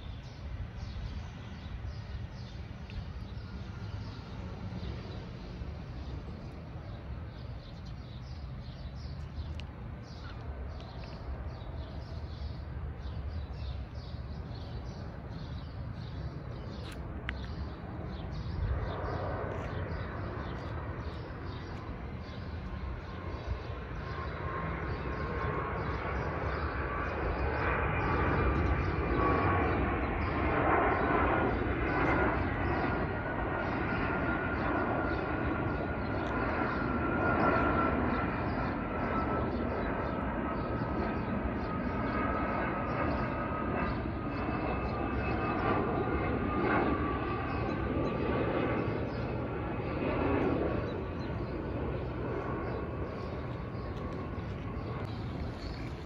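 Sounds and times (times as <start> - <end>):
jet engine whine overhead: 0.0 - 56.0.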